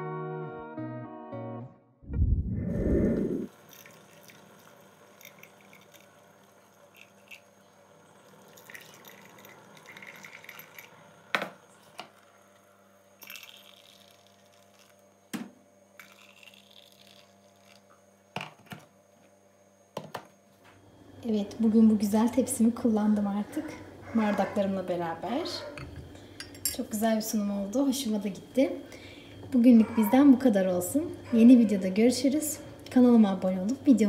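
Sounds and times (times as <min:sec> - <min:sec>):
tea trickling into glass: 0:03.7 - 0:07.5, 0:08.2 - 0:11.0, 0:13.2 - 0:14.9, 0:16.0 - 0:17.8.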